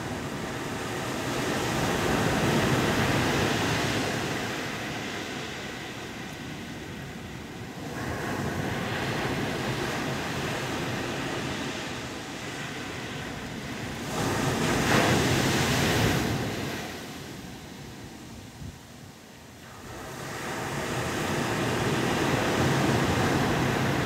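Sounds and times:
surf breaking on beach: 0:00.0 - 0:18.4, 0:19.6 - 0:24.0
wind buffeting microphone: 0:00.0 - 0:19.1.

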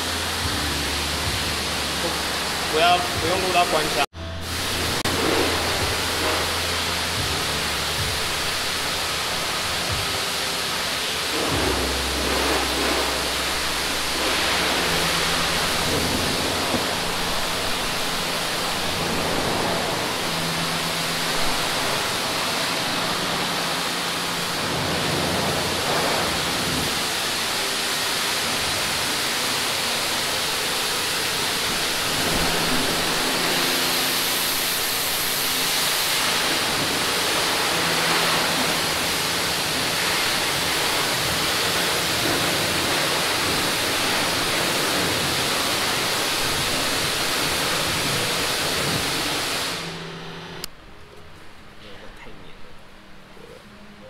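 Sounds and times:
low hum: 0:00.0 - 0:27.7
steady rushing noise: 0:00.0 - 0:50.8.

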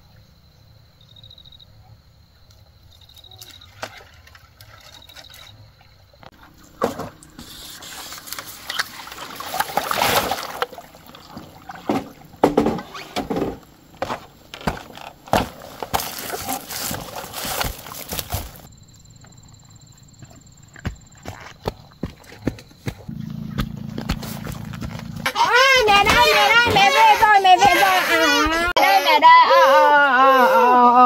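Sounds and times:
water splashing and sloshing: 0:02.4 - 0:18.7
knocks and clatter: 0:11.4 - 0:16.2.

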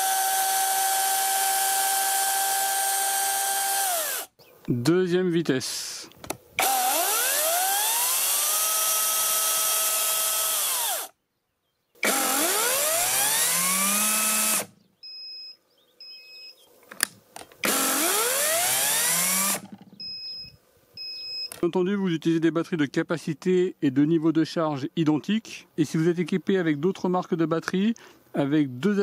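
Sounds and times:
chainsaw motor and chain whining: 0:00.0 - 0:04.3, 0:06.6 - 0:11.2, 0:12.0 - 0:14.7, 0:17.6 - 0:20.0.

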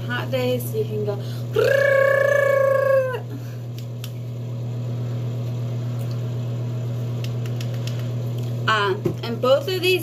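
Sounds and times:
handheld fan whirring: 0:00.0 - 0:10.0.

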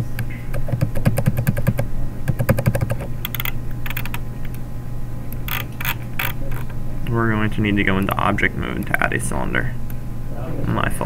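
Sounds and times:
computer keyboard typing: 0:00.0 - 0:04.2
steady low hum: 0:00.0 - 0:11.0.

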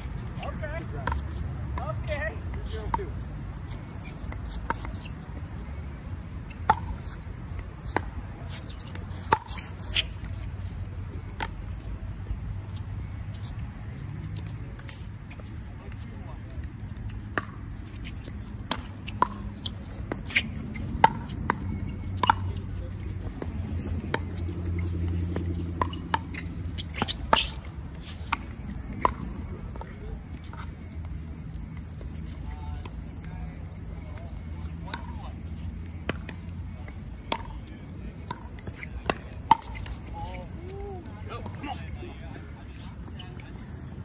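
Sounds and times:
ball bouncing on hard court: 0:17.3 - 0:22.6, 0:23.3 - 0:30.7, 0:36.0 - 0:37.6.

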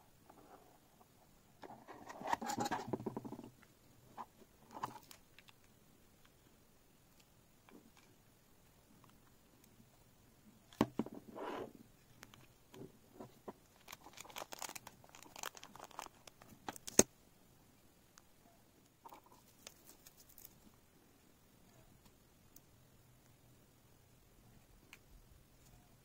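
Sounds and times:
plastic bag crinkling: 0:13.7 - 0:17.0
plastic parts clicking: 0:13.7 - 0:17.1.

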